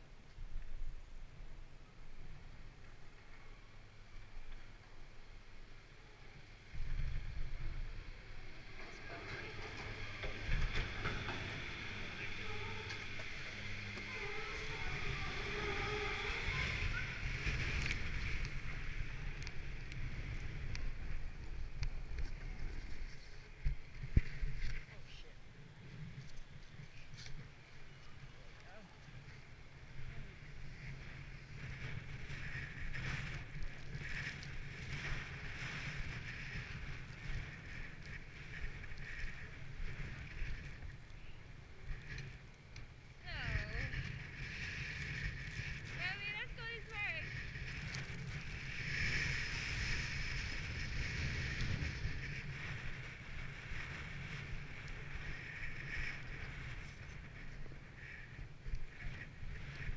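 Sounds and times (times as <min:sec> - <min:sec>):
wind rumble on microphone: 0:00.0 - 0:59.9
snowboard carving over snow: 0:06.4 - 0:25.1, 0:29.1 - 0:46.3, 0:47.0 - 0:59.9.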